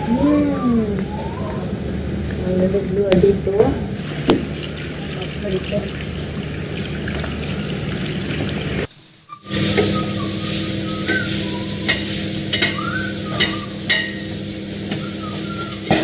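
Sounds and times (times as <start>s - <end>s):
tap water running into sink: 4.0s - 8.9s.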